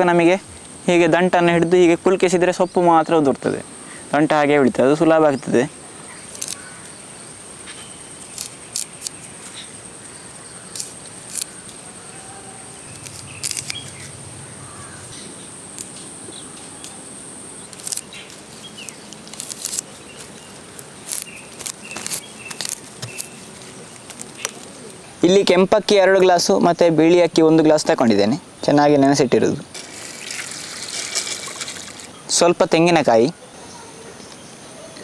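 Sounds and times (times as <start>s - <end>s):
high-pitched insect drone: 0.0s - 33.4s
faint bird chirps: 5.2s - 15.6s, 33.2s - 35.0s
leaves stripped from stems: 6.3s - 6.7s, 8.2s - 9.6s, 10.7s - 11.8s, 12.9s - 14.1s, 17.7s - 25.0s, 29.7s - 32.2s.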